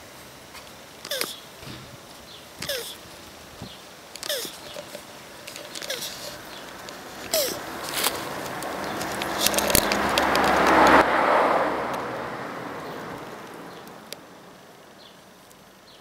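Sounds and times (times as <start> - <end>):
tortoise squeak: 1.0 - 1.5, 2.6 - 3.1, 4.2 - 4.9, 5.7 - 7.7
rushing noise: 1.5 - 14.9
scattered clicks: 4.0 - 11.0.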